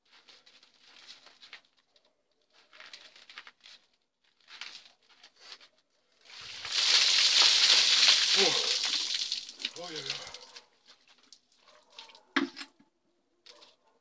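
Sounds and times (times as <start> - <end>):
water splashing over body: 6.2 - 10.6.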